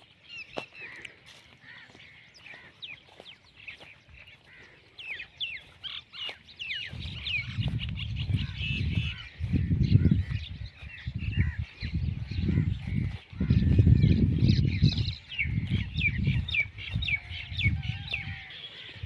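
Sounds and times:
birds chirping and squawking: 0.0 - 19.0
wind buffeting microphone: 5.0 - 19.0.

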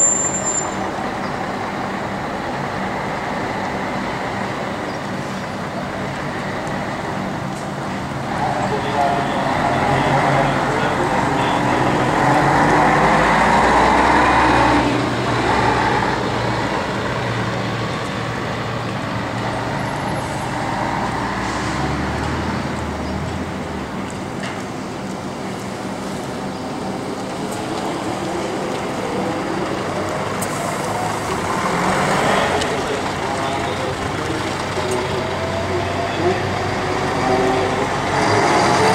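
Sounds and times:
bus driving close by: 0.0 - 38.9
diesel buses pulling away: 0.0 - 38.9.

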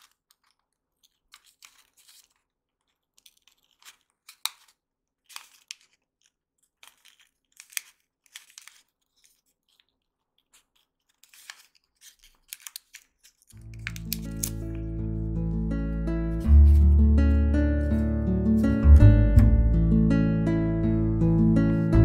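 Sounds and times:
paper rustling and crinkling: 0.0 - 14.9, 16.3 - 18.7
music: 13.6 - 22.0.

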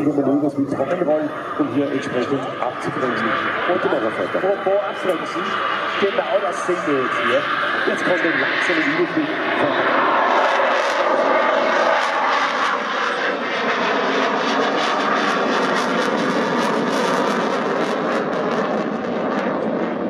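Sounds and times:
jet engine noise: 0.0 - 20.0.

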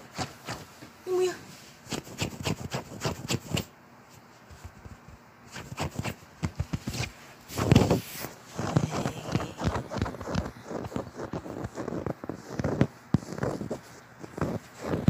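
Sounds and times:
fur rubbing microphone: 4.5 - 15.0
dog paws rustling bedding: 6.1 - 15.0.

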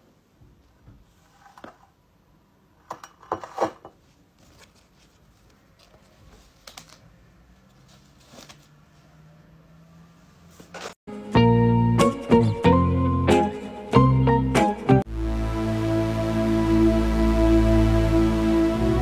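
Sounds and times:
paper face mask rustling: 4.0 - 9.2.

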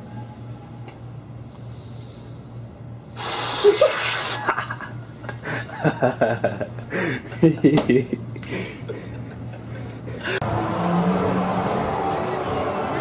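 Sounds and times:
aerosol can hissing: 3.2 - 4.4.

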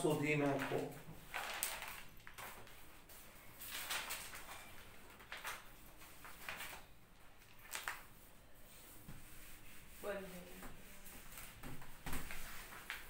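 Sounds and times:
rustling and scraping: 7.6 - 13.0
duster wiping whiteboard: 8.6 - 13.0.

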